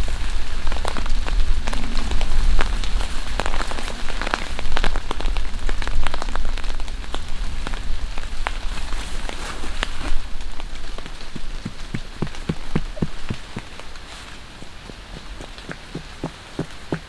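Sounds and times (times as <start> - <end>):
tarp rustling: 0.0 - 16.9
rain pattering on plastic tarp: 0.0 - 17.0.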